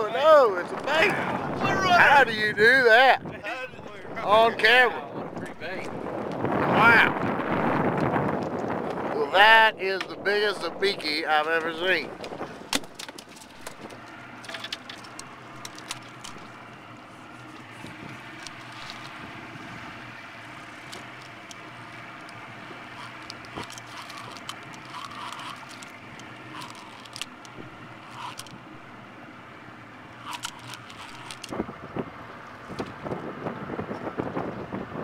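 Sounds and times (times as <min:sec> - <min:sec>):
boat engine idling: 0:00.0 - 0:35.0
small clicks and knocks: 0:11.6 - 0:19.2, 0:20.8 - 0:28.7, 0:30.2 - 0:31.6.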